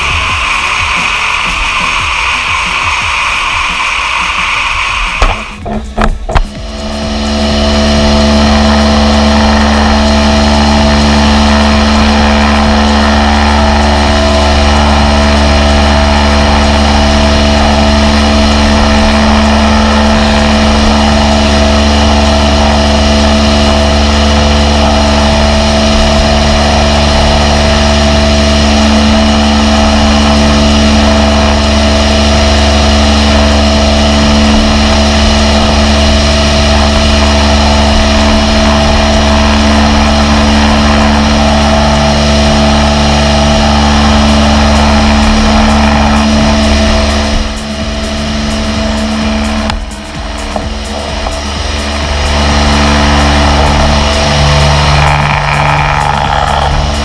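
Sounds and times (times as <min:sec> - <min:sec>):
water jet hissing: 0:00.0 - 0:05.6
pressure washer hum: 0:00.0 - 0:57.0.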